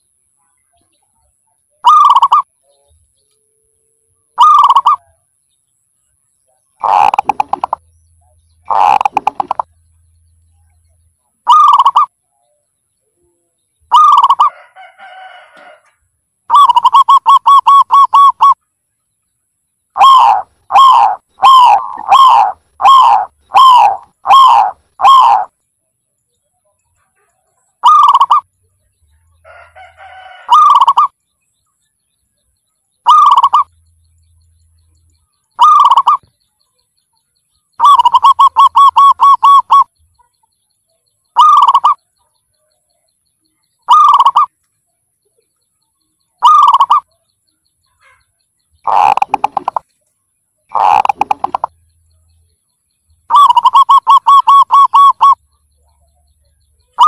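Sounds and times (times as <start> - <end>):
dove cooing: 1.8 - 2.5, 4.4 - 5.0, 6.8 - 7.8, 8.6 - 9.7, 11.5 - 12.1, 13.9 - 15.7, 16.5 - 18.6, 20.0 - 25.5, 27.8 - 28.4, 29.5 - 31.1, 33.1 - 33.7, 35.6 - 36.2, 37.8 - 39.9, 41.4 - 42.0, 43.9 - 44.5, 46.4 - 47.0, 48.8 - 49.8, 50.7 - 51.7, 53.3 - 56.2.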